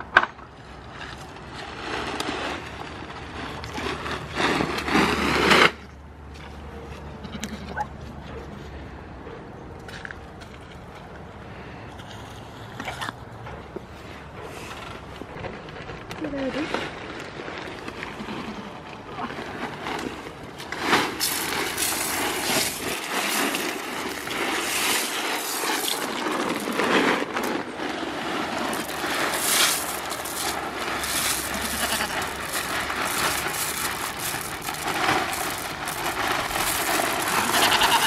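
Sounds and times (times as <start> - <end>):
gravel pouring onto ground: 0.8 - 5.8, 16.9 - 38.0
plastic sack crinkling: 15.0 - 38.0.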